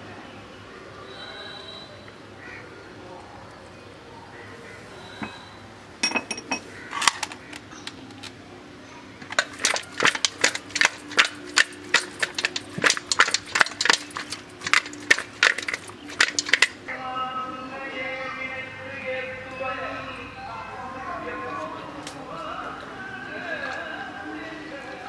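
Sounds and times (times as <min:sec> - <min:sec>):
steel bowl knocking on concrete: 0:09.2 - 0:16.8.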